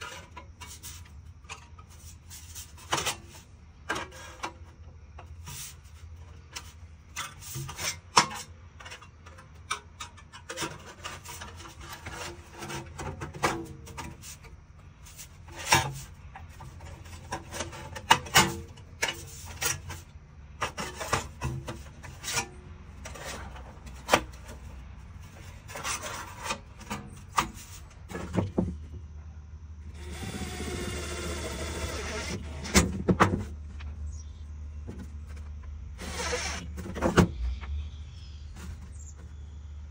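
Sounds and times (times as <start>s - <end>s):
steady low hum: 0.0s - 39.9s
metal scraping against bench: 10.2s - 28.8s.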